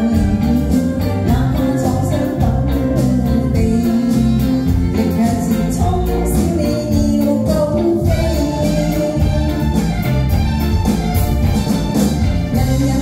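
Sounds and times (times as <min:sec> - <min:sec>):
woman singing: 0:00.0 - 0:09.9, 0:12.5 - 0:13.0
drum kit: 0:00.0 - 0:13.0
electric guitar: 0:00.0 - 0:13.0
keyboards: 0:00.0 - 0:13.0.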